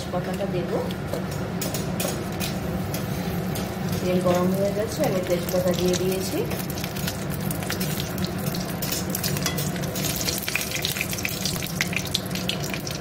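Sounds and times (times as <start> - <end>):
leaves sizzling in hot oil: 2.7 - 13.0.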